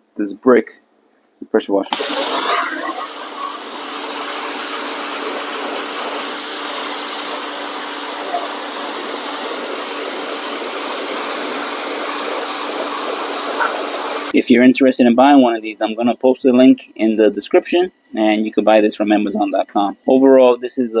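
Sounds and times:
pressure washer motor hum: 1.9 - 14.3
water jet hissing against brick: 1.9 - 14.3.

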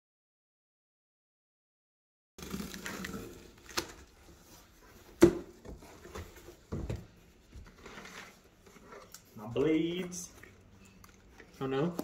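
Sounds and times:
packing paper rustling: 2.4 - 5.0.

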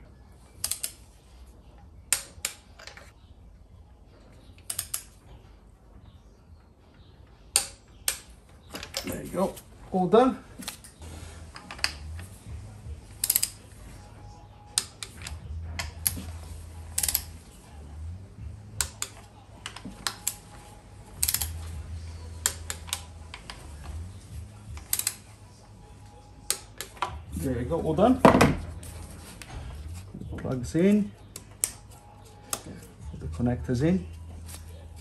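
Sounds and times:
clicks and knocks of tools: 0.6 - 1.0, 4.6 - 5.2, 10.6 - 12.3, 18.8 - 21.7, 24.7 - 25.3, 26.4 - 27.2.

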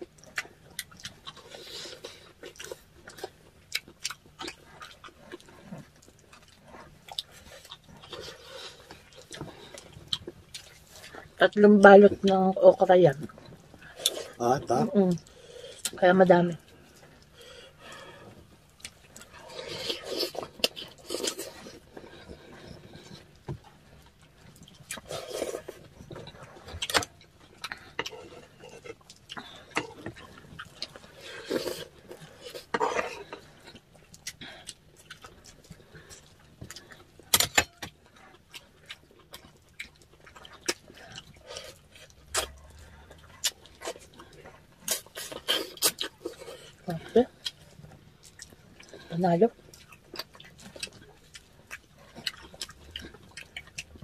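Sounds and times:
people chewing: 0.0 - 54.0.

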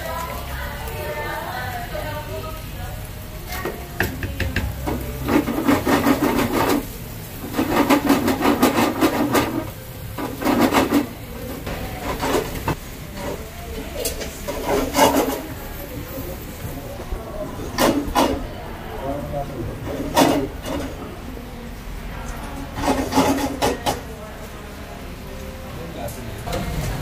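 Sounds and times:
utensils scraping a frying pan: 3.5 - 16.8, 17.4 - 18.6, 19.6 - 21.2, 22.3 - 24.1.

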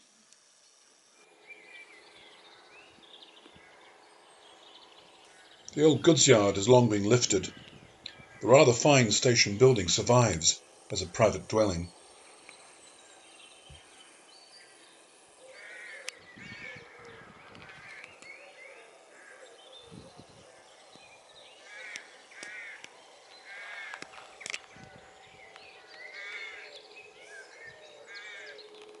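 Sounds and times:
faint bird chirping: 0.5 - 29.0
birds calling: 1.4 - 29.0
sharp clicks: 23.9 - 24.8.

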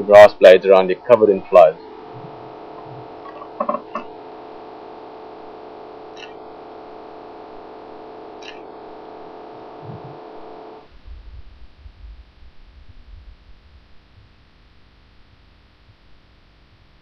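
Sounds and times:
steady electrical hum: 0.0 - 17.0
sharp clicks: 6.1 - 6.4, 8.4 - 8.7.

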